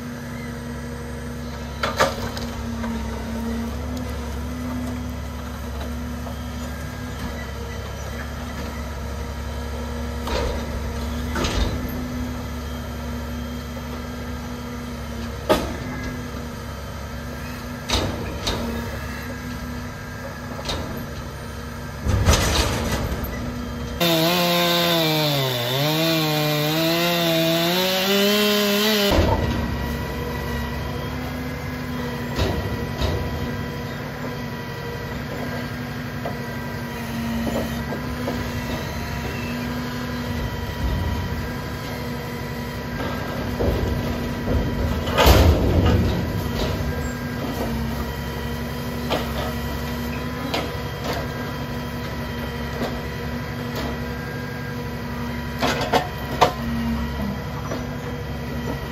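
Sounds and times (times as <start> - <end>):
hydraulic loader whining: 23.3 - 40.5
diesel truck engine running: 24.0 - 34.2.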